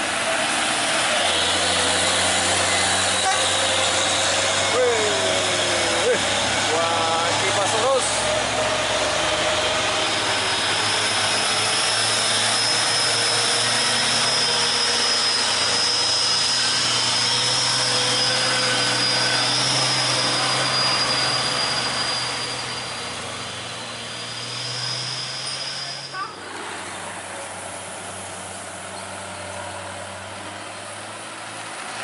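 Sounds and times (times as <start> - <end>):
diesel trucks driving past: 0.0 - 32.0
high engine whine: 0.0 - 32.0.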